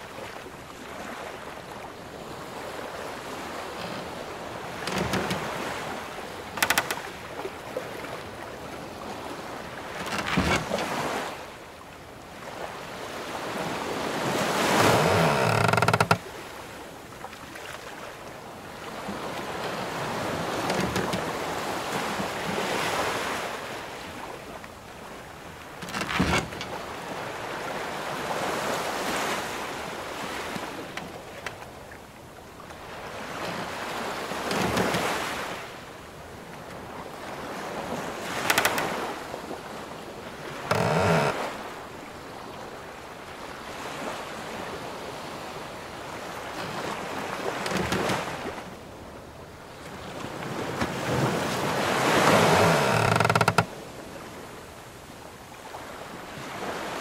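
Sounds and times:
ocean waves washing: 0.0 - 57.0
wooden ship timbers creaking: 3.7 - 7.2, 9.8 - 11.2, 14.5 - 16.3, 20.2 - 21.5, 25.7 - 26.8, 30.2 - 31.8, 34.2 - 35.6, 38.2 - 39.2, 40.4 - 41.6, 47.4 - 48.6, 52.0 - 53.8.

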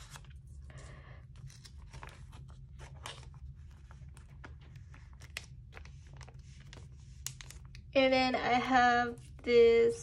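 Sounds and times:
low steady hum: 0.0 - 10.0
plastic sleeves crinkling: 1.3 - 8.0.

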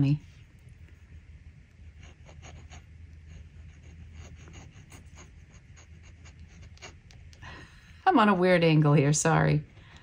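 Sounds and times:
pen nib scratching on paper: 1.6 - 7.3.

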